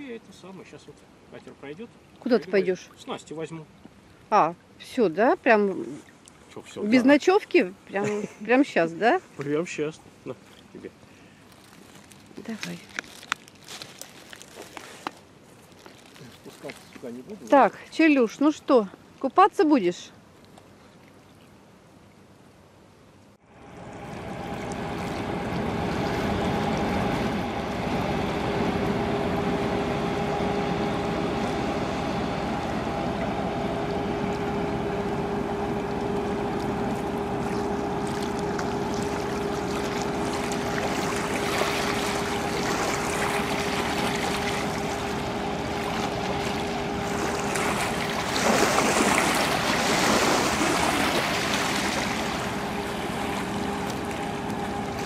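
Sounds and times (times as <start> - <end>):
water lapping: 0.0 - 18.6, 23.4 - 55.0
wind: 0.0 - 55.0
boat engine droning: 23.4 - 55.0.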